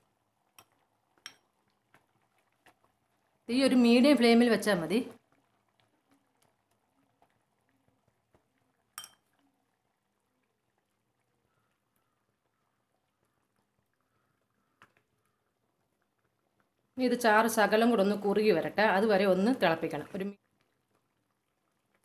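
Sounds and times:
thick gravy bubbling: 0.0 - 22.0
utensil clinking against pan: 9.0 - 9.2.

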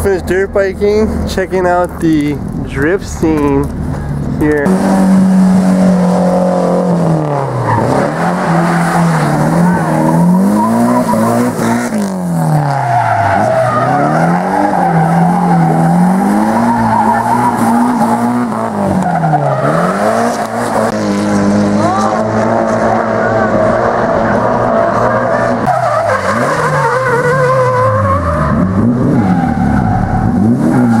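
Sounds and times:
car engine revving: 0.0 - 31.0
tyres squealing: 6.6 - 20.9.

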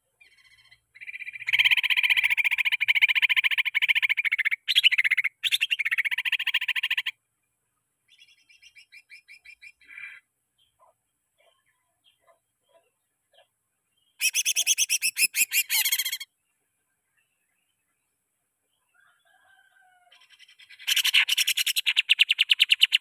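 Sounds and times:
bird singing rattling trill: 0.2 - 7.1, 14.0 - 16.3, 20.2 - 23.0.

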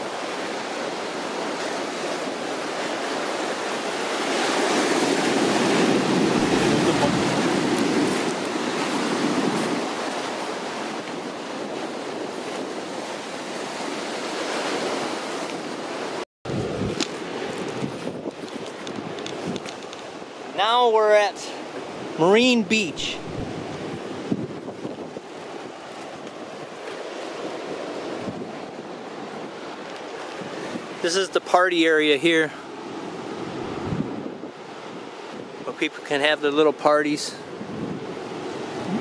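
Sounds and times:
surf washing onto beach: 0.0 - 39.0
wind on microphone: 3.8 - 20.3, 23.0 - 31.0, 33.0 - 35.7, 37.4 - 39.0.

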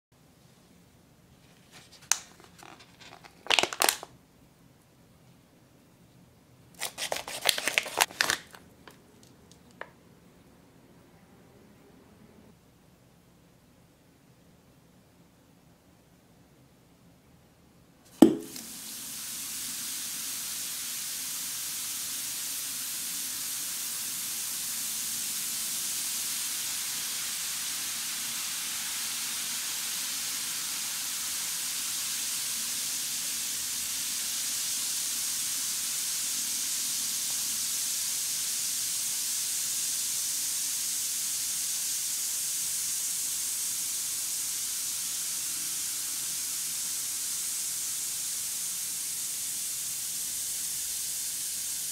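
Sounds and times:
fizzing hiss: 1.6 - 4.1, 6.7 - 8.6, 18.1 - 51.9
bath ball splashing into water: 18.1 - 18.9.

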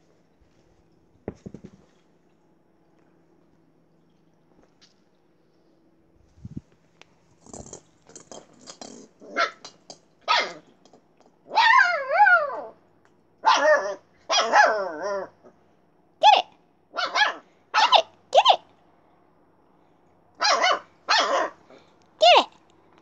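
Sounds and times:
puppy barking: 9.3 - 10.6, 11.5 - 12.7, 13.4 - 15.3, 16.2 - 18.6, 20.4 - 21.6
puppy howling: 11.5 - 12.8, 13.4 - 15.4.

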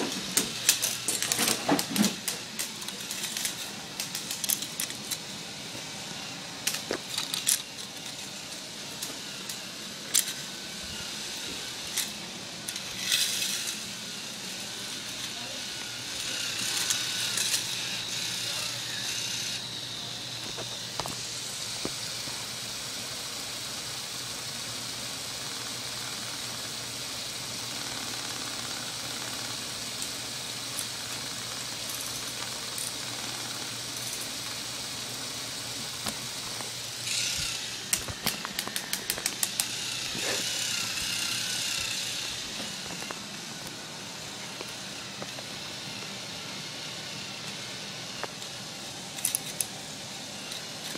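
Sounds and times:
plastic clicks of train on track: 0.0 - 5.2, 6.6 - 10.5, 11.9 - 13.9, 14.6 - 19.2, 25.4 - 34.6, 35.9 - 43.8, 47.4 - 49.8
toy motor humming: 0.0 - 50.9.

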